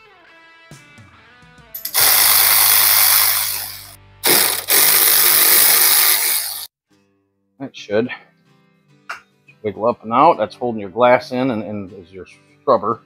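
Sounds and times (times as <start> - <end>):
electric ratchet spinning: 1.8 - 6.7.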